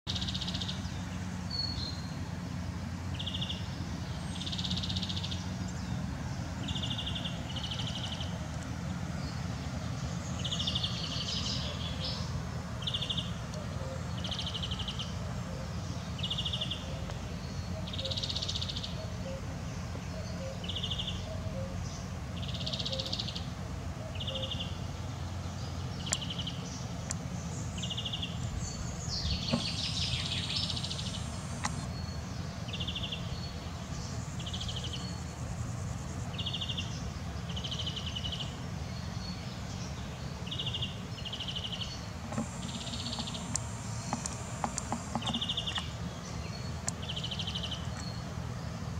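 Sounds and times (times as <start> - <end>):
songbirds singing trilled phrases: 0.1 - 48.9
steady low rumble: 42.1 - 47.4.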